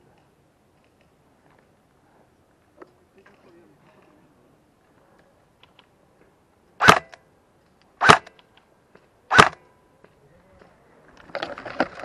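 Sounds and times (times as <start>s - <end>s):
airsoft rifle shots: 6.8s - 7.2s, 8.0s - 8.4s, 9.3s - 9.6s.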